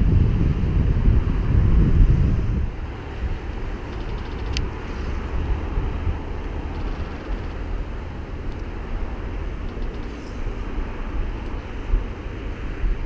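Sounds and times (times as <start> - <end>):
wind buffeting microphone: 0.0 - 13.0
faint ticks: 3.8 - 5.2, 6.6 - 7.7, 8.5 - 8.8, 9.6 - 10.4.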